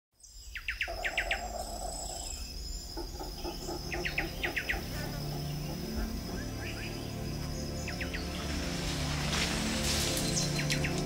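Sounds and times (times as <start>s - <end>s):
high insect whine: 0.2s - 11.0s.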